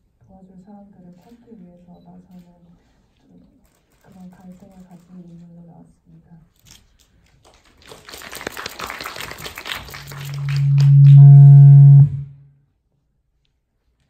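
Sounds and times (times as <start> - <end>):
audience applause: 7.5 - 11.2
microphone feedback howl: 10.2 - 12.4.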